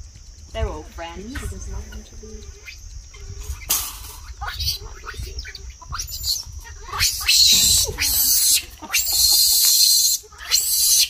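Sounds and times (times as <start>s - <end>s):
monkeys squealing and screaming: 2.6s - 11.0s.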